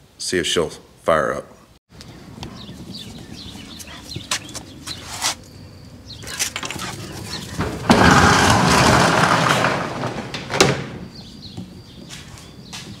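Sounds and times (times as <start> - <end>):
metal door clank: 7.6 - 11.1
metal roll-up door rattling: 7.6 - 11.1.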